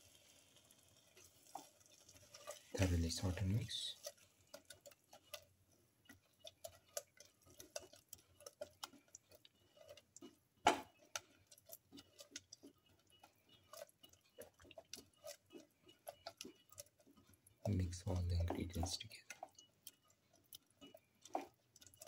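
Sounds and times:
spatula stirring paste in pot: 0.0 - 22.0.

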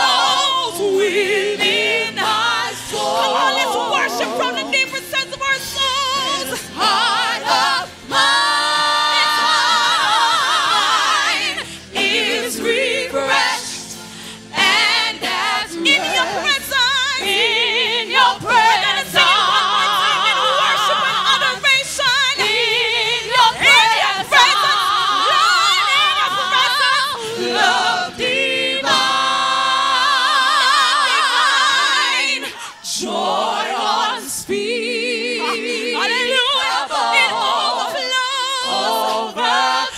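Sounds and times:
gospel group singing: 0.0 - 39.9.

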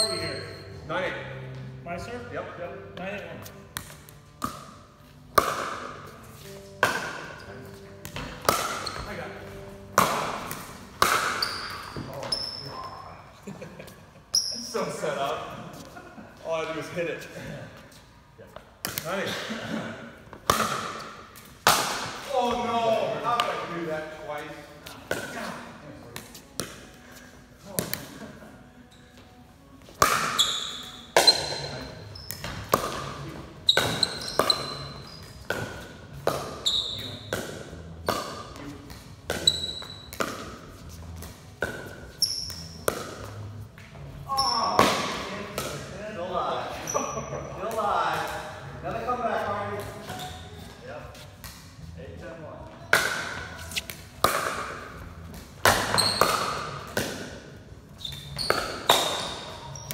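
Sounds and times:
paddles hitting plastic ball: 5.3 - 6.1, 6.8 - 7.3, 8.0 - 12.2, 18.8 - 19.1, 20.3 - 22.3, 29.8 - 30.5, 32.2 - 43.5, 52.9 - 57.4.

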